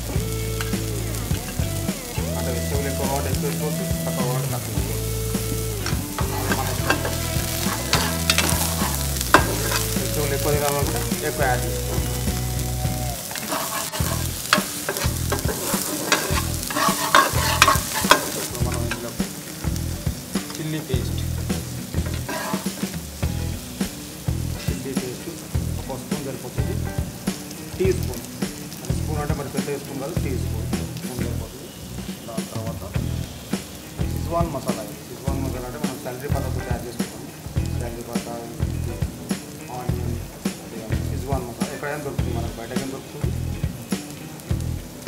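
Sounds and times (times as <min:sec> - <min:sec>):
oil sizzling: 0:00.0 - 0:45.0
spatula scraping frying pan: 0:05.9 - 0:10.2, 0:13.2 - 0:19.2, 0:22.0 - 0:23.0.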